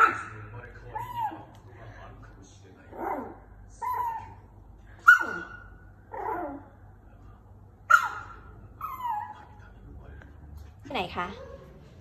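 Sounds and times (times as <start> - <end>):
dog yipping and whining: 0.0 - 1.5, 2.9 - 6.7, 7.9 - 9.6.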